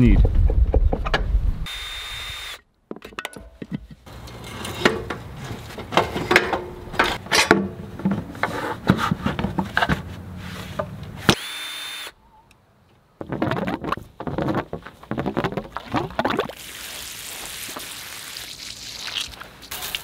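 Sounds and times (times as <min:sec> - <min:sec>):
cordless drill spinning: 0:01.7 - 0:02.6, 0:11.3 - 0:12.1
metal parts clanking: 0:05.8 - 0:07.8.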